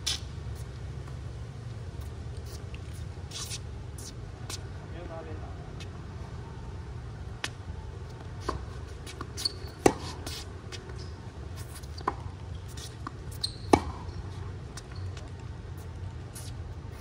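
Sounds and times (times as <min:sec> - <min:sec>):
tennis ball bouncing: 0:07.4 - 0:15.4
racket hitting tennis ball: 0:08.3 - 0:14.9.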